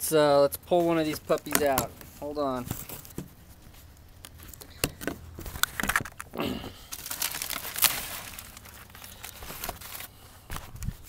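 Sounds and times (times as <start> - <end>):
aluminium foil crinkling: 5.4 - 11.0.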